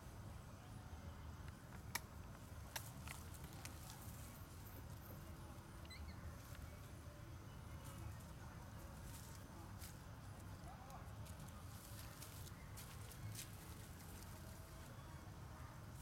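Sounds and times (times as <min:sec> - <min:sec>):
faint high chirp: 0:04.5 - 0:08.2.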